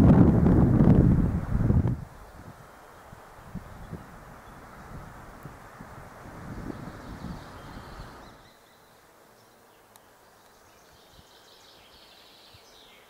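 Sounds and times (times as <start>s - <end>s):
wind noise on microphone: 0.0s - 8.4s
faint birdsong: 2.0s - 13.0s.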